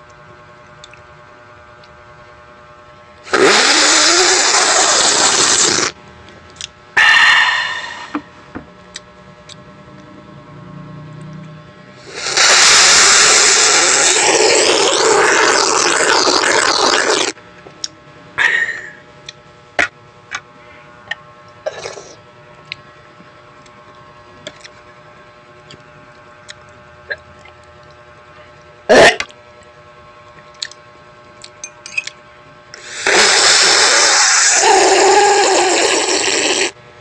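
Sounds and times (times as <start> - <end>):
loud rushing hiss on microphone: 12.0 - 14.8.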